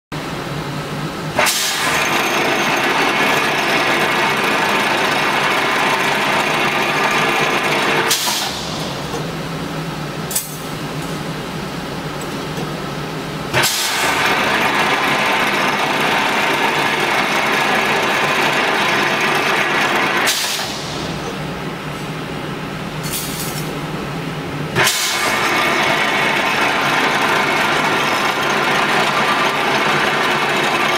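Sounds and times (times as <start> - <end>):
trimming machine running: 1.3 - 10.1, 13.5 - 21.9, 24.8 - 30.9
machine clacking: 24.8 - 30.9.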